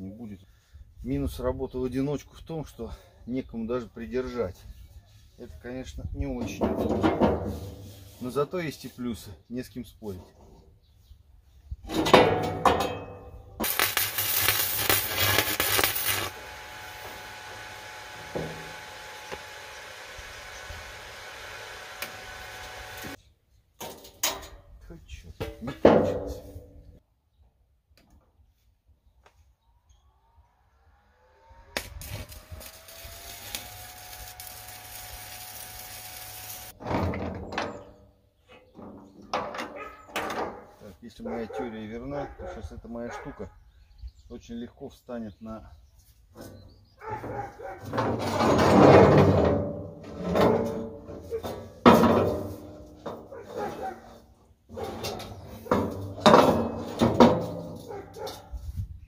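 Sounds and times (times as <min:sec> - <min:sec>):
metal knocking and clattering: 0:11.9 - 0:13.2, 0:54.8 - 0:58.0
welding arc crackling: 0:13.6 - 0:23.2, 0:31.7 - 0:36.8.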